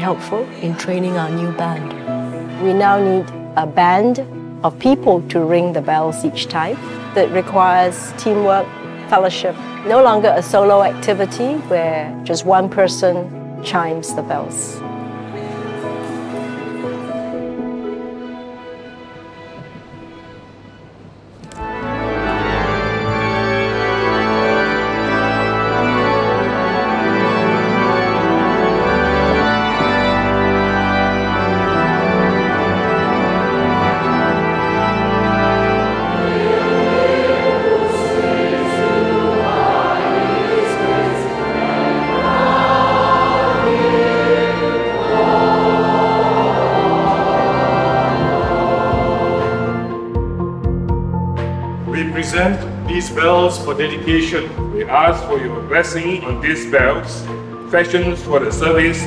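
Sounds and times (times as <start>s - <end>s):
organ playing sustained chords: 0.0s - 59.0s
choir singing: 21.6s - 50.2s.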